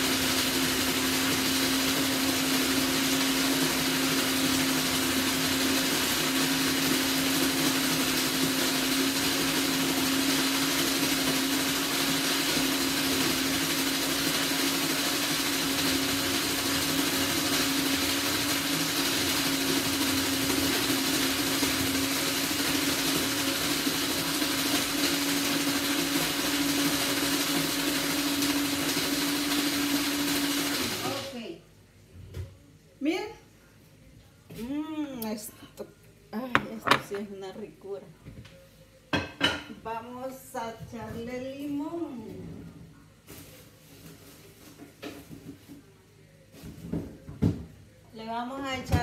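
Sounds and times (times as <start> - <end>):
electric ice shaver running: 0.0 - 31.4.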